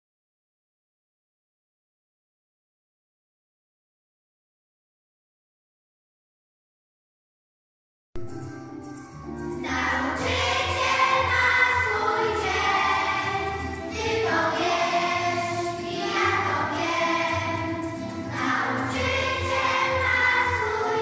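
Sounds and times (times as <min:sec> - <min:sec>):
instrumental accompaniment: 0:08.2 - 0:21.0
children singing: 0:09.5 - 0:21.0.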